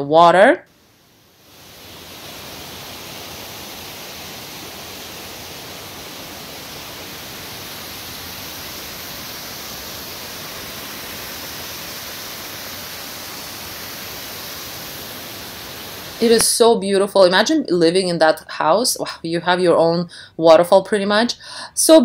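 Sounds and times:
water rushing over spillway: 0:00.8 - 0:16.7.

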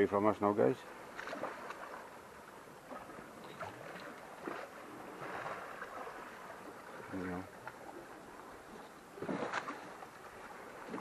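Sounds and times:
sea water lapping against rocks: 0:00.8 - 0:11.0
small splashes and knocks: 0:01.1 - 0:02.1, 0:02.8 - 0:08.0, 0:09.2 - 0:11.0.

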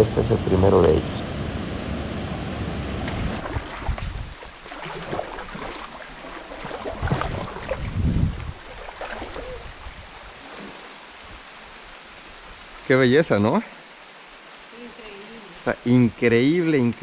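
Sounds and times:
paddle splashing in water: 0:03.0 - 0:11.2
water lapping on hull: 0:03.0 - 0:11.2.

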